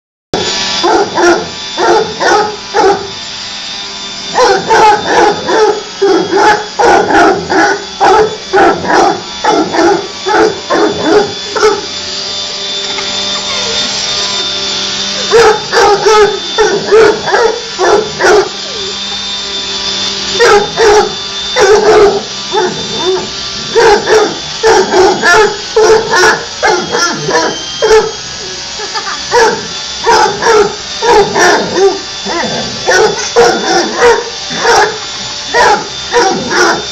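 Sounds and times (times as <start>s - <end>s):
vacuum cleaner whine: 0.4s - 36.9s
dog barking and yipping: 0.8s - 3.1s, 4.3s - 11.9s, 15.2s - 18.6s, 20.4s - 28.2s, 29.0s - 36.9s.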